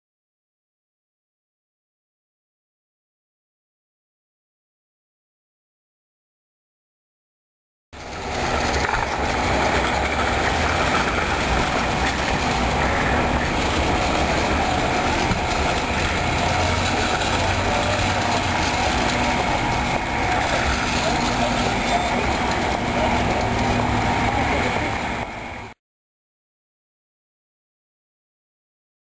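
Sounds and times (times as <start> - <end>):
low rumble: 8.0 - 25.7.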